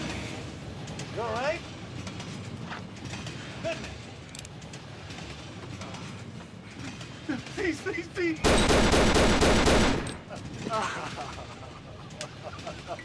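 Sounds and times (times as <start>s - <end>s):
rapid handgun fire: 8.4s - 10.2s.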